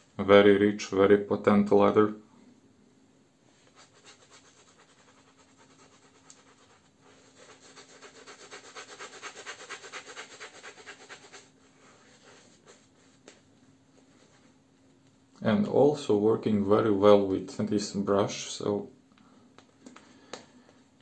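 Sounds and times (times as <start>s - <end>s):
shaving brush swishing lather: 3.6s - 13.2s.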